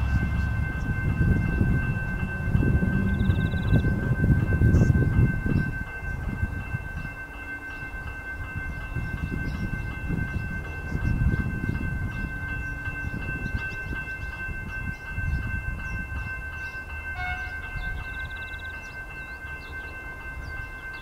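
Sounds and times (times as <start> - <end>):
electric train rumbling: 0.0 - 21.0
level crossing warning bells: 0.0 - 21.0.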